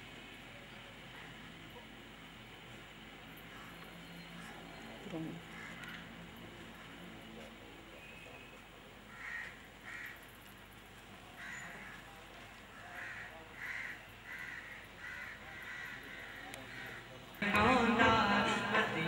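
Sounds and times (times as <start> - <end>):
crow cawing: 3.5 - 3.8, 4.4 - 4.7, 5.4 - 6.1, 9.1 - 10.3, 11.4 - 17.2.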